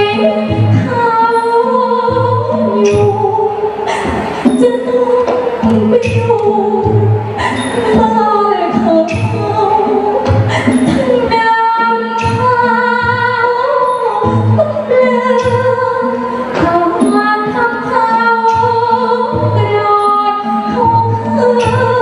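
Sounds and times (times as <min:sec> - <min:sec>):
woman singing into microphone: 0:00.0 - 0:22.0.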